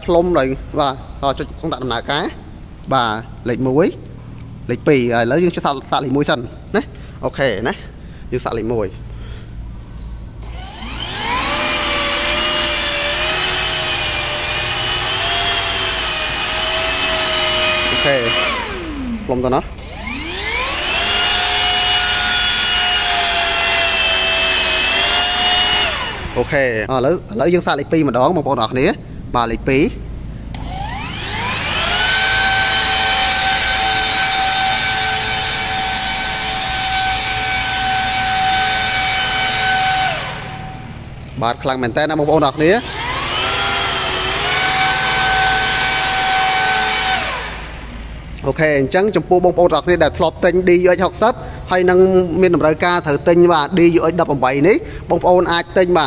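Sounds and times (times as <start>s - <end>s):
blower motor whine: 9.3s - 26.9s, 30.4s - 41.4s, 42.3s - 48.4s.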